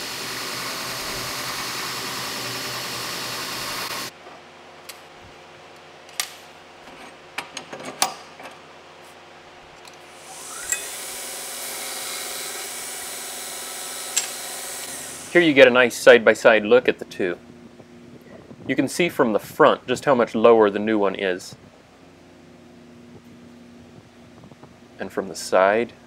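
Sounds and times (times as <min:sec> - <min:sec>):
belt grinder grinding metal: 0:00.0 - 0:04.1, 0:10.2 - 0:15.4
grinder motor whine: 0:00.0 - 0:04.1, 0:10.1 - 0:15.4.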